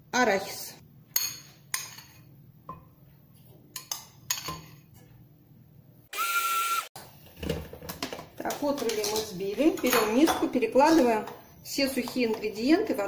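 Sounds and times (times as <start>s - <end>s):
coffee grinder motor whining: 6.1s - 6.9s.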